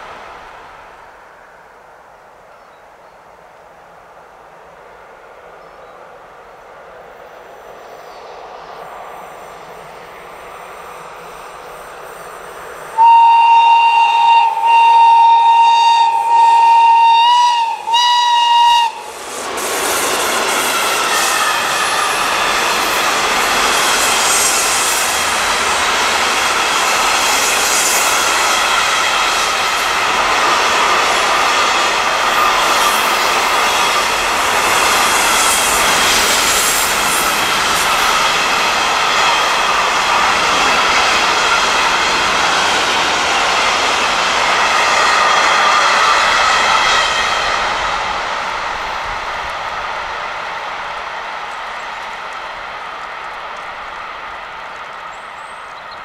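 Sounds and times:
train wheels rumbling on rails: 3.4s - 56.0s
train horn: 13.0s - 19.1s.

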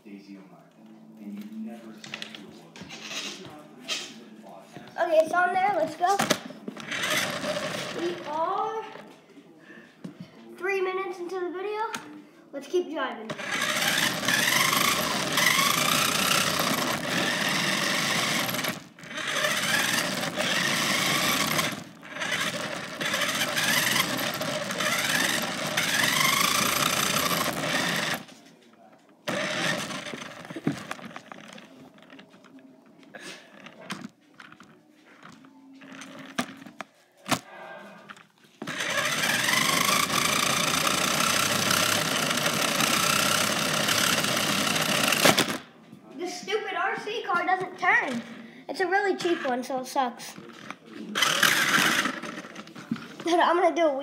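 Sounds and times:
toy car motor whirring: 2.8s - 4.0s, 5.8s - 9.0s, 13.3s - 28.4s, 29.2s - 32.6s, 33.2s - 37.5s, 38.1s - 45.6s, 46.5s - 53.9s.

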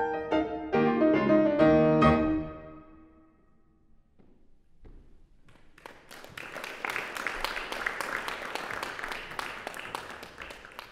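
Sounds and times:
audience applauding: 5.7s - 10.9s.

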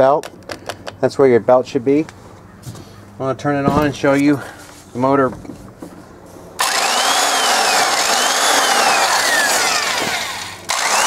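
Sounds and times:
belt sander motor whirring: 6.6s - 11.0s.

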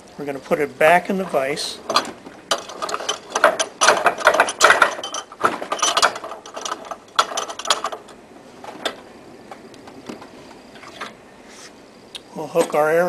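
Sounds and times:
metal clicks and clanks in vise: 1.9s - 8.2s.

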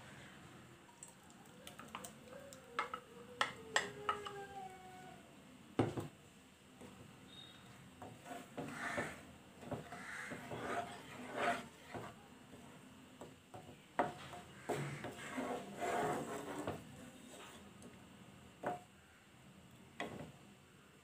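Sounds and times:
wooden spatula scraping a pan: 8.0s - 12.2s, 14.0s - 17.7s.

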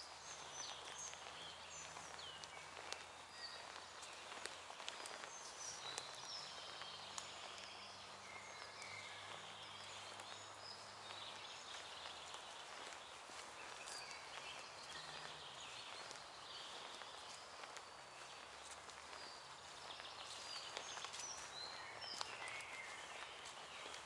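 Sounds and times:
footsteps on dirt path: 0.0s - 24.0s
songbirds chirping and singing: 0.0s - 24.0s.

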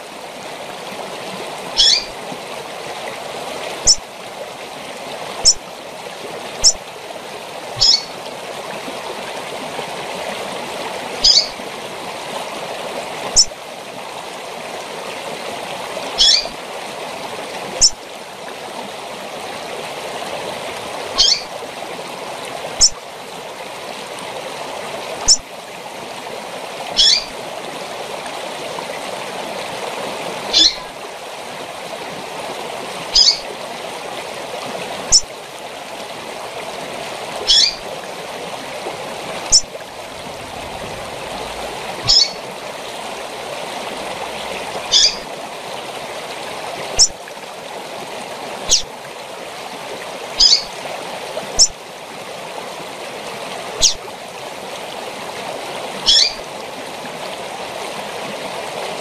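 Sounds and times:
waterfall rushing: 0.0s - 51.9s, 53.0s - 59.0s
bird giving high falling calls: 1.8s - 2.1s, 7.8s - 8.2s, 11.2s - 11.6s, 16.2s - 16.5s, 21.2s - 21.5s, 27.0s - 27.3s, 30.5s - 30.9s, 33.2s - 33.4s, 37.5s - 37.8s, 42.0s - 42.4s, 44.9s - 45.3s, 48.7s - 48.9s, 50.4s - 50.7s, 53.8s - 54.0s, 56.0s - 56.4s.

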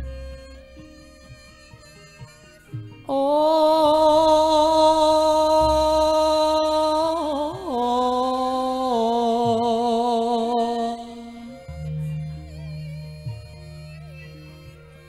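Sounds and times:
person singing long held notes: 3.0s - 13.8s.

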